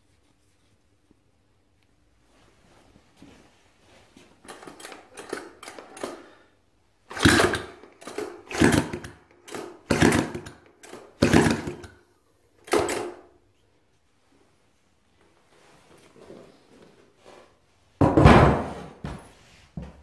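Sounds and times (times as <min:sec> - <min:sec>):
engine turned over by hand: 0:04.4 - 0:06.2, 0:07.1 - 0:12.0.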